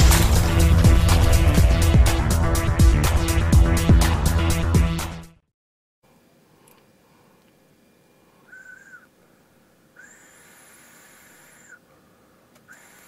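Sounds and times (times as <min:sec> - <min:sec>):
air whistling through e-cigarette: 0:08.5 - 0:09.1, 0:10.0 - 0:11.8, 0:12.6 - 0:13.0.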